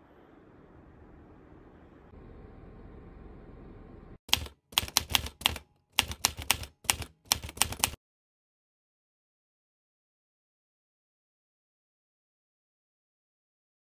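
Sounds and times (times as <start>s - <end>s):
low room hum: 0.0s - 4.2s
keyboard typing clicks: 4.3s - 8.0s.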